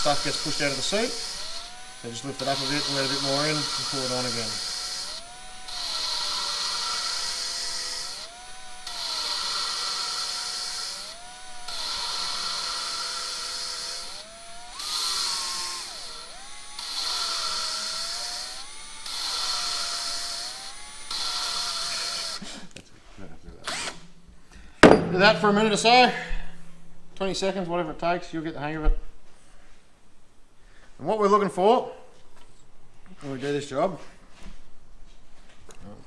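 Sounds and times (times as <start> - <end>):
drill motor whine: 0.0 - 22.4
gritty grinding hiss: 0.0 - 28.8.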